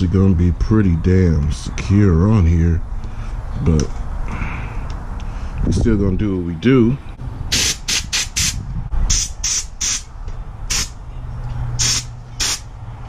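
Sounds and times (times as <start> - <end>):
nozzle hissing bursts: 7.5 - 10.1, 10.7 - 11.0, 11.8 - 12.7.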